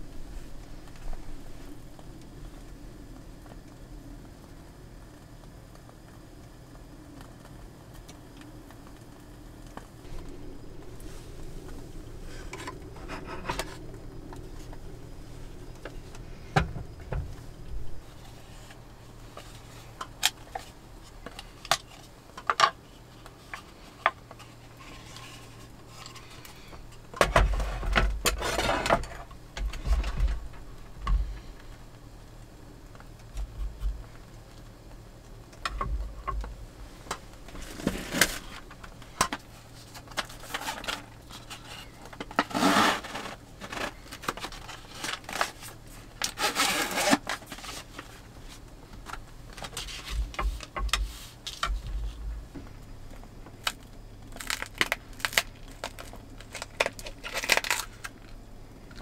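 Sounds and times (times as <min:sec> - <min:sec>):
faint low hum: 0:00.0 - 0:59.0
scraping rustle: 0:09.7 - 0:31.8, 0:35.6 - 0:53.7
wood and metal clicks and knocks: 0:35.5 - 0:42.5, 0:48.9 - 0:52.7.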